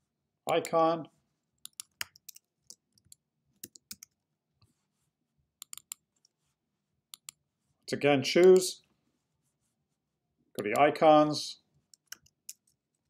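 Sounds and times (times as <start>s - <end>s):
computer mouse clicks: 1.6s - 4.2s, 5.6s - 6.3s, 7.1s - 7.4s, 11.9s - 12.8s.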